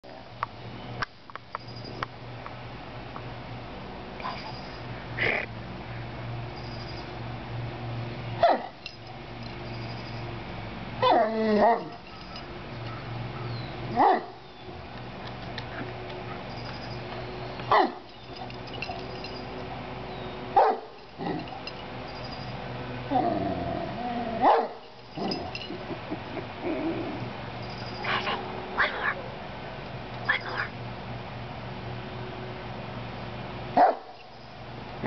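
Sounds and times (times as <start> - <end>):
dog vocal calls: 28.0 - 29.2, 30.3 - 30.8.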